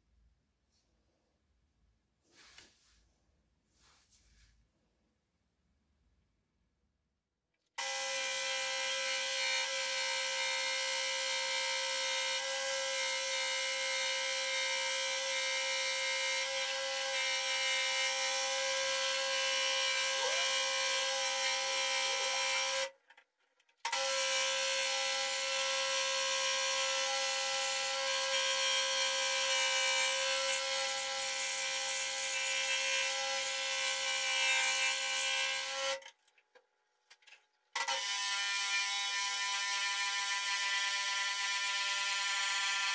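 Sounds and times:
scroll saw cutting wood: 7.8s - 23.0s, 23.8s - 36.1s, 37.8s - 42.9s.

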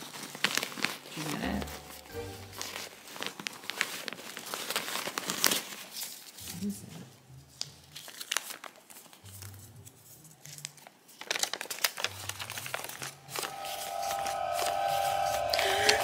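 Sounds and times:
paper crinkling and rustling: 0.0s - 1.7s, 2.5s - 6.6s, 7.5s - 13.1s
steady held tone: 13.2s - 16.0s.

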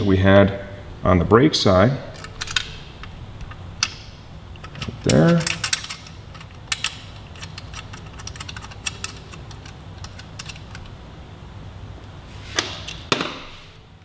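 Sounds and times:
tools tapping on metal parts: 3.4s - 10.9s.

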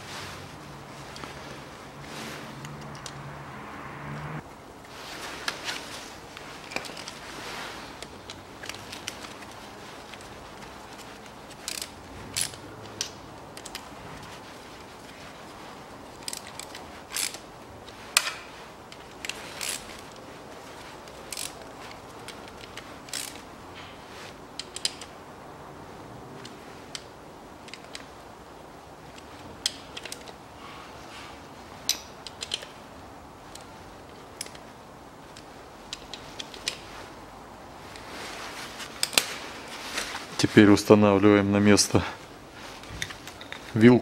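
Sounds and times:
wrench clicking on bolts: 11.5s - 13.8s, 19.2s - 19.8s, 22.4s - 23.4s, 31.9s - 32.8s.

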